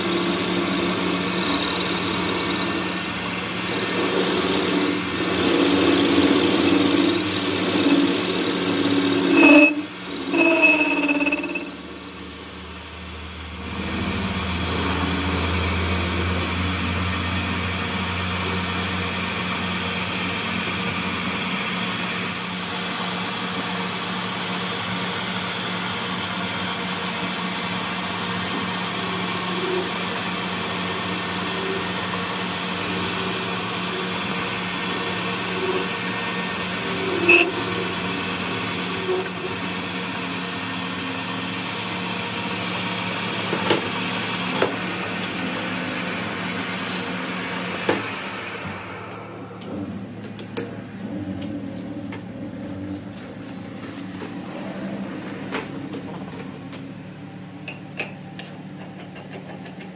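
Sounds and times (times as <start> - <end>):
cutting tool scraping metal: 0.0 - 13.0, 13.6 - 16.6, 28.5 - 40.5, 44.5 - 47.2
metal lathe humming: 0.0 - 51.2.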